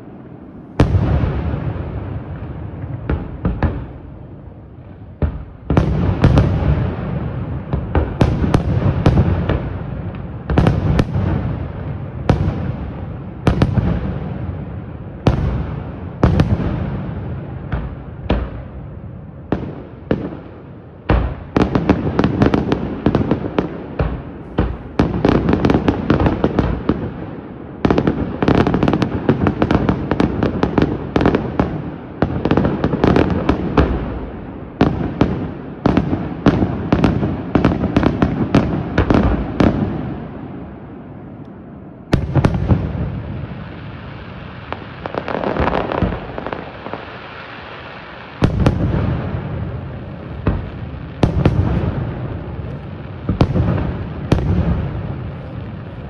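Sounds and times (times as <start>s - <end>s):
fireworks bangs and crackles: 0.0s - 56.0s.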